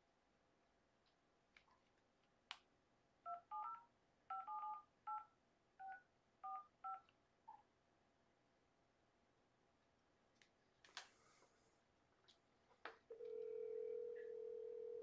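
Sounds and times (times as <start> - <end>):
phone keypad dialing beeps: 3.3 - 7.0.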